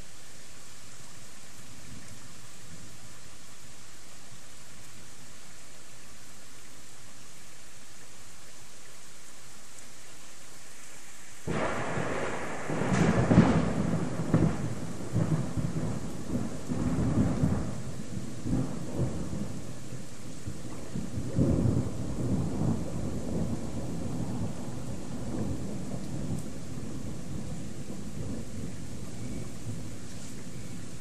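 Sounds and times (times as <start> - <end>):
heavy rain hissing: 0.0 - 31.0
thunder rolling and rumbling: 11.5 - 31.0.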